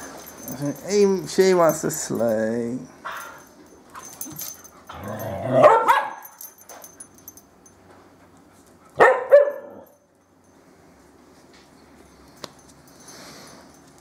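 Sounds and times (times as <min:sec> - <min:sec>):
dogs barking: 0:04.9 - 0:06.4, 0:09.0 - 0:10.0.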